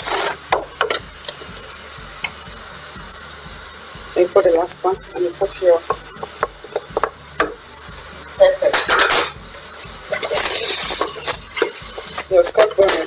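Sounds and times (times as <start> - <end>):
wooden spoon stirring frying mince: 0.0 - 13.0
plate knocking against metal pot: 5.9 - 7.6.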